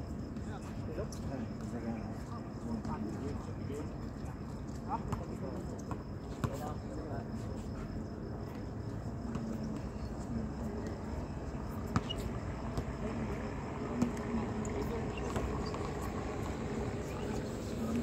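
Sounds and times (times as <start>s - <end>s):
low outdoor hum: 0.0s - 18.0s
faint voices: 9.0s - 18.0s.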